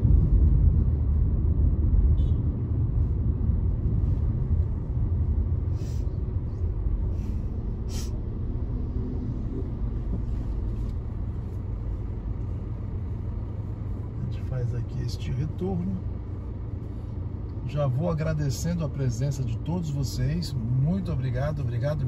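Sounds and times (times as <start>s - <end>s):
car engine and road noise: 0.0s - 22.0s
short hisses: 7.9s - 8.2s.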